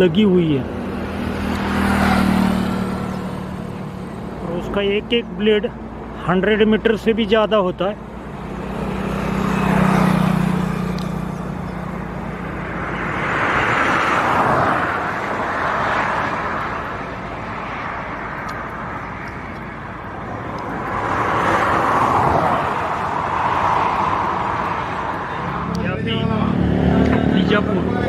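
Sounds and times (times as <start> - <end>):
highway traffic passing: 0.0 - 28.0.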